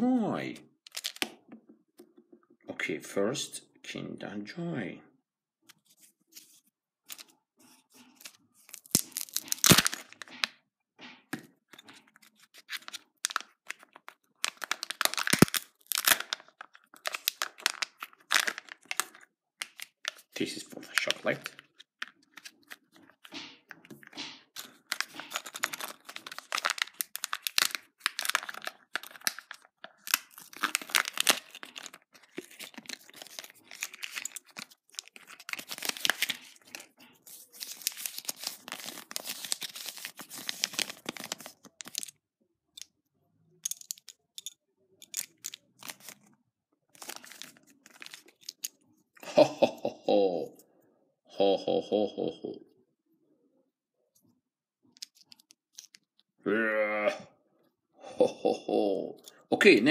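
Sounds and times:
plastic packaging crinkling: 0:00.9 - 0:01.2, 0:08.0 - 0:10.5, 0:11.8 - 0:42.2, 0:45.0 - 0:46.3, 0:46.9 - 0:48.8.

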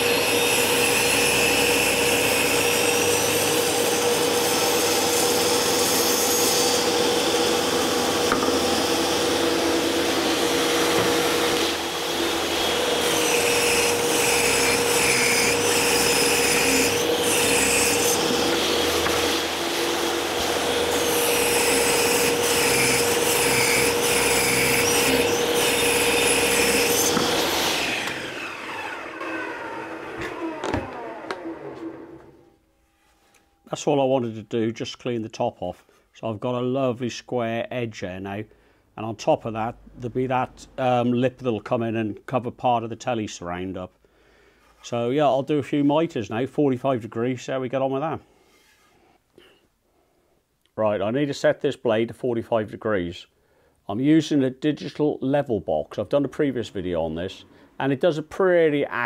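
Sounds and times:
table saw cutting wood: 0:00.0 - 0:32.4
saw blade spinning down: 0:06.8 - 0:32.4.

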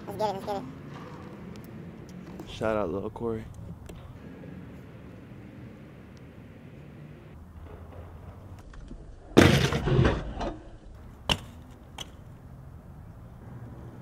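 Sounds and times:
bike grinding on concrete ledge: 0:09.2 - 0:11.6
bike landing clack: 0:09.4 - 0:10.6, 0:11.2 - 0:12.2.

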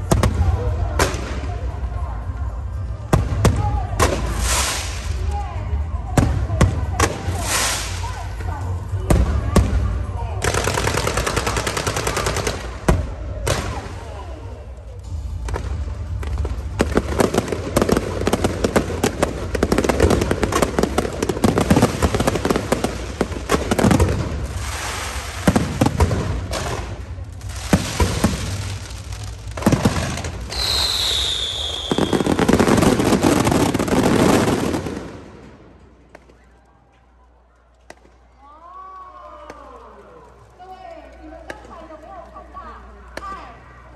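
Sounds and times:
firecrackers crackling: 0:00.0 - 0:43.9
falling firework whistle: 0:30.5 - 0:33.3.

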